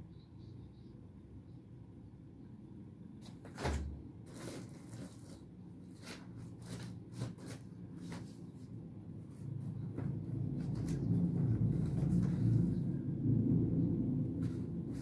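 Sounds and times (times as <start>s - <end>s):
rustling handling noise: 3.2s - 12.8s.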